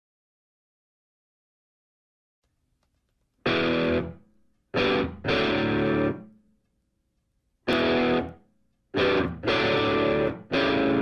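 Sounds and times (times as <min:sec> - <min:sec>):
distorted electric guitar chords: 0:03.5 - 0:04.2, 0:04.8 - 0:06.3, 0:07.7 - 0:08.4, 0:09.0 - 0:11.0.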